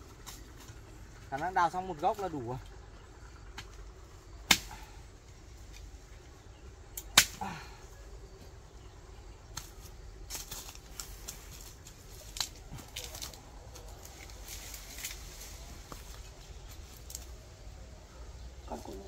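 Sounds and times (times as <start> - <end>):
digging tool striking soil: 4.5 - 4.8, 7.0 - 7.5, 9.5 - 10.8.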